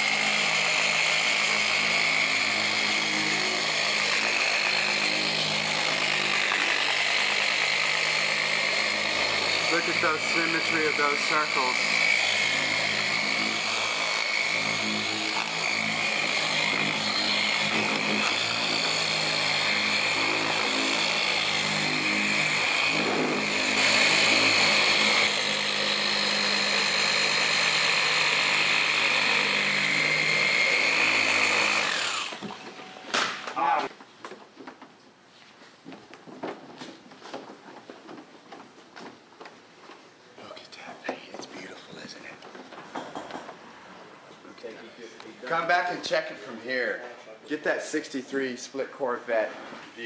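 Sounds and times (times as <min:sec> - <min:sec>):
orbital polisher whining hum: 0:00.0 - 0:33.5.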